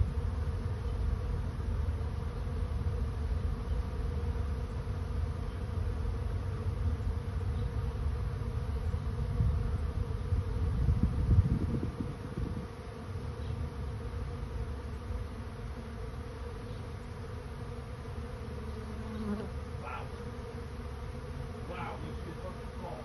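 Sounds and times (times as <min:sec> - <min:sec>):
bee swarm buzzing: 0:00.0 - 0:23.0.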